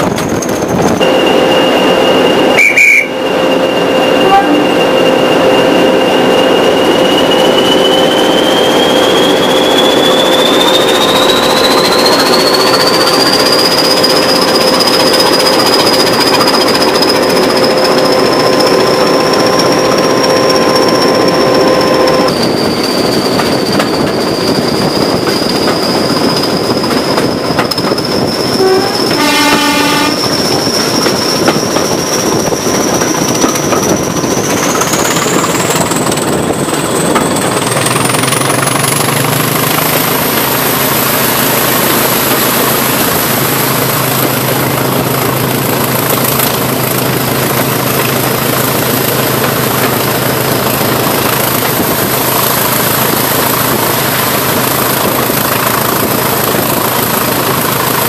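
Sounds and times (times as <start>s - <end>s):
diesel locomotive engine: 0.0s - 58.0s
turbocharger whistle: 0.9s - 26.7s, 28.1s - 36.2s
locomotive horn blast: 1.0s - 8.0s, 28.6s - 30.5s.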